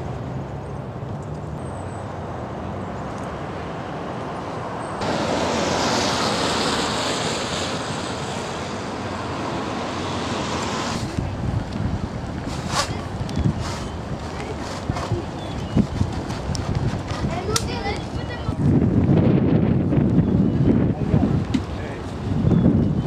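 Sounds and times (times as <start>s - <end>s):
road noise rumble: 0.0s - 23.0s
wind gusts buffeting microphone: 5.0s - 23.0s.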